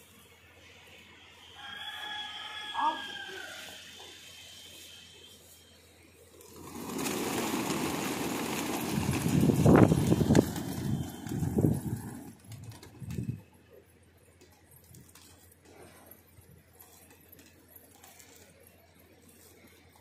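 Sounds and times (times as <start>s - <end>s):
pigeon wings flapping: 6.3s - 13.5s, 14.4s - 15.8s, 16.8s - 19.6s.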